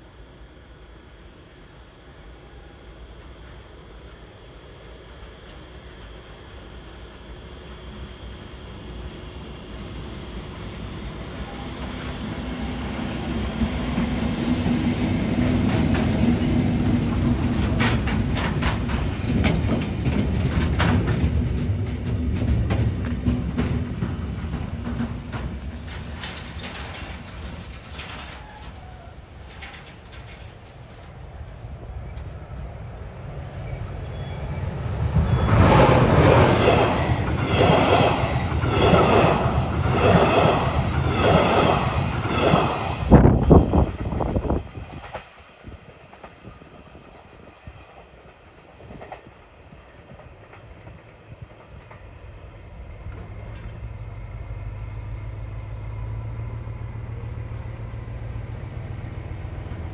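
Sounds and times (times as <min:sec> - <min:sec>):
train wheels clattering over rail: 0:11.6 - 0:31.4, 0:35.0 - 0:52.2
faint wheel squeal: 0:25.8 - 0:32.7, 0:33.3 - 0:36.1.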